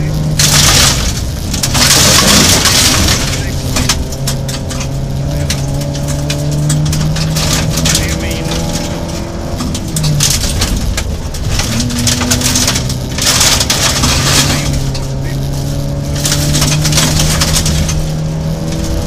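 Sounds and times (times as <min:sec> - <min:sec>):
gravel hissing against car: 0:00.0 - 0:19.0
rally car engine revving: 0:00.0 - 0:19.0.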